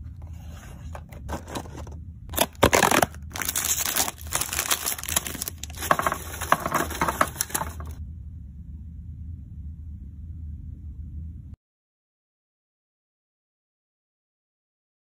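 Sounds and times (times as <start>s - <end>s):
plastic package crinkling: 1.3s - 8.0s
cookies clattering into glass jar: 2.4s - 8.0s.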